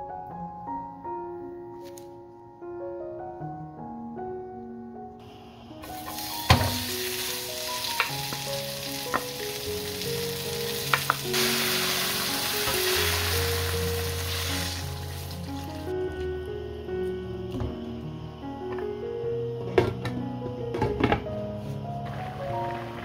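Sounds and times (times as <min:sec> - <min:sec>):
vegetables sizzling in a wok: 0:05.8 - 0:15.9
water pouring into a wok: 0:06.0 - 0:15.8, 0:22.5 - 0:23.0.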